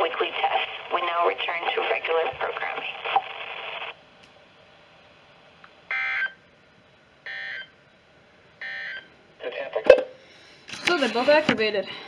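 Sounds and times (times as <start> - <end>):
broadcast voice: 0.0 - 3.4, 9.4 - 10.0, 10.8 - 11.9.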